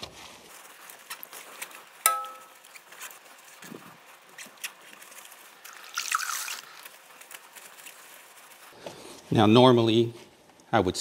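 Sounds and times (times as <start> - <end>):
sharp ringing tap: 2.1 - 2.5.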